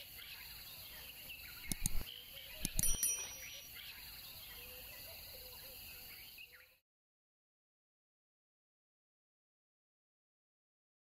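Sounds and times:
birds calling faintly: 0:00.0 - 0:06.8
insects chirring: 0:00.0 - 0:06.8
high ringing note: 0:02.8 - 0:03.7.

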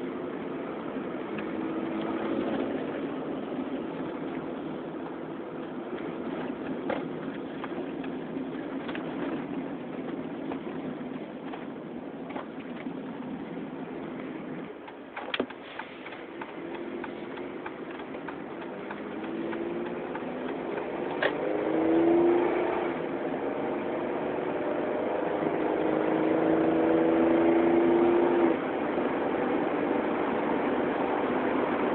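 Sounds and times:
car engine accelerating: 0:00.0 - 0:14.8, 0:15.8 - 0:31.9.

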